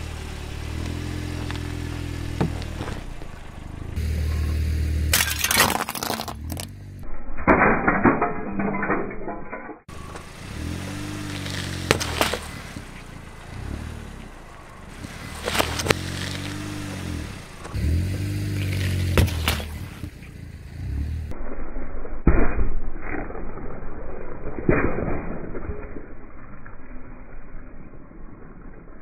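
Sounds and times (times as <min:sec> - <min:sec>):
car engine revving: 0:00.0 - 0:05.6, 0:09.9 - 0:21.4
tyres crunching over grit: 0:10.1 - 0:13.1, 0:14.9 - 0:20.3.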